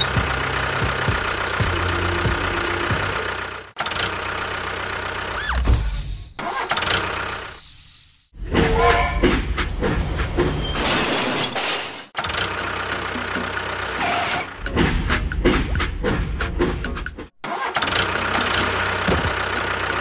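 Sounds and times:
engine running: 0.0s - 5.3s.

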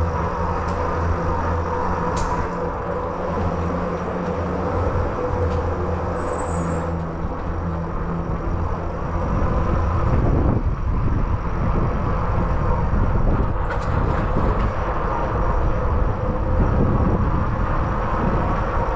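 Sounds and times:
tyres rolling on concrete: 0.0s - 9.0s
low hum in tunnel: 0.0s - 18.9s
wind rushing over microphone: 0.0s - 18.9s.

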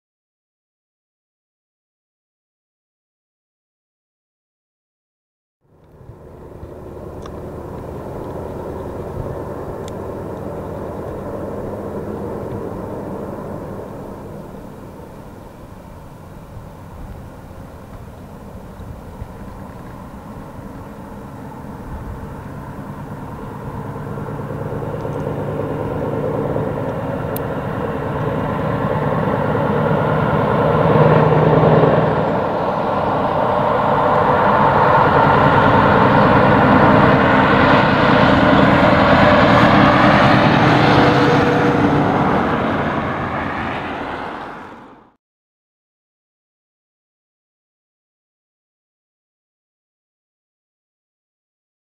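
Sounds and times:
truck diesel engine under load: 5.7s - 45.2s.

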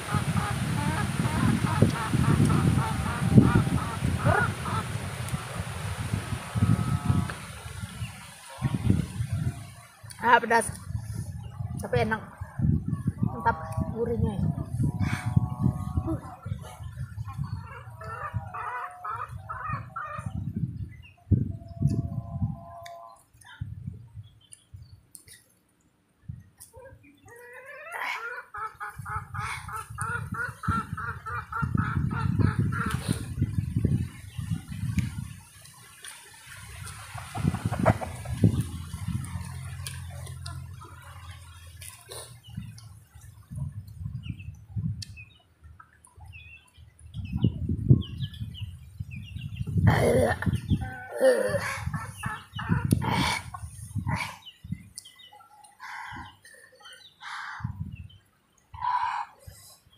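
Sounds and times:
small birds chirping: 22.7s - 35.1s, 37.2s - 59.9s
low rumbling noise: 36.6s - 44.7s.

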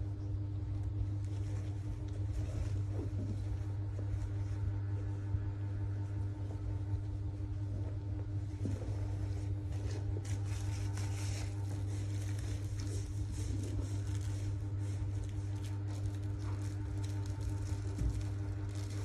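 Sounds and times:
steady low hum: 0.0s - 19.0s
fabric and plastic wrapping rustling: 8.4s - 19.0s.

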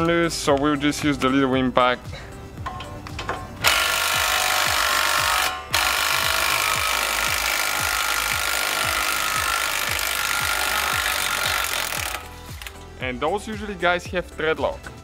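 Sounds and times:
impact wrench running: 3.6s - 12.7s.

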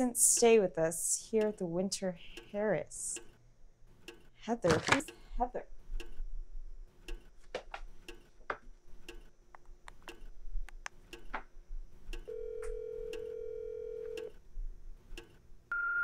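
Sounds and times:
phone ringback tone: 12.3s - 14.3s.

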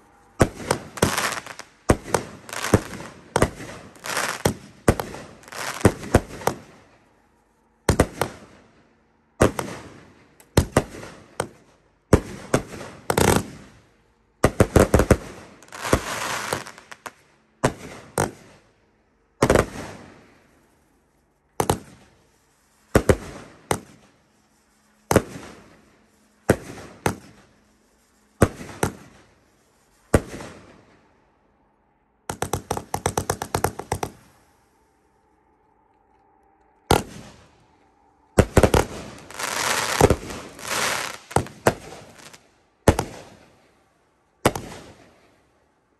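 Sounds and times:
fireworks bangs: 0.0s - 7.0s, 7.8s - 18.7s, 19.4s - 20.6s, 21.6s - 31.1s, 32.2s - 35.1s, 36.8s - 43.8s, 44.4s - 45.4s
rapid fireworks volley: 0.0s - 31.1s, 32.2s - 35.1s, 36.8s - 37.7s, 38.3s - 45.7s.

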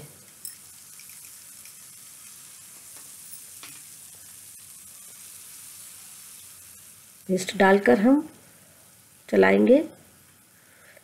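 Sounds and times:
paste sizzling in hot oil: 0.0s - 10.9s.

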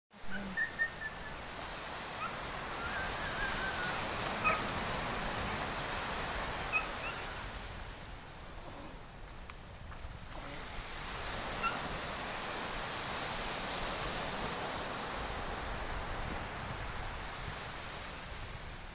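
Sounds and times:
faint bird calls: 0.2s - 1.5s, 2.2s - 4.8s, 6.6s - 7.5s, 11.6s - 11.9s
waves washing onto beach: 0.2s - 18.9s.

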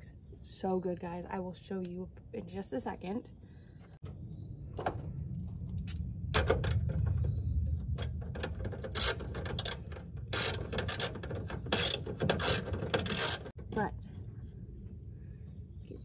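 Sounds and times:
steady low rumble: 3.5s - 9.0s.

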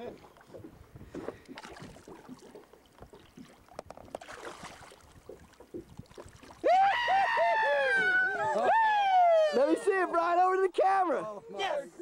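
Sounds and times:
water splashing: 0.0s - 8.3s
people whooping and yelling: 6.6s - 10.0s.

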